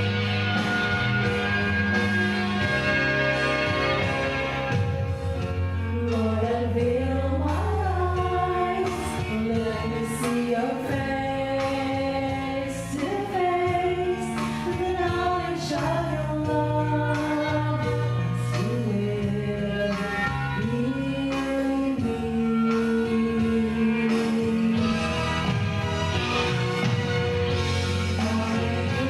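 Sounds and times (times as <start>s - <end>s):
instrumental accompaniment: 0.0s - 29.0s
women singing worship song: 6.0s - 24.9s, 28.2s - 29.0s.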